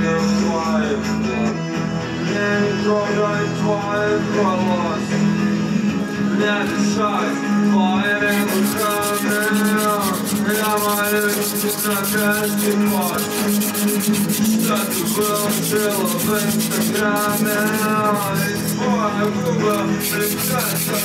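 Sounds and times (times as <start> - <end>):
song playing: 0.1 - 21.0
pastel stick scratching on paper: 8.2 - 18.8, 19.6 - 21.0.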